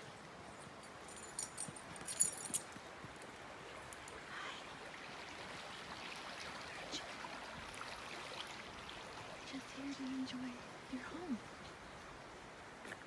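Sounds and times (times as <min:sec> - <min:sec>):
creek rushing: 0:00.0 - 0:13.0
dog collar tags jingling: 0:00.8 - 0:02.7.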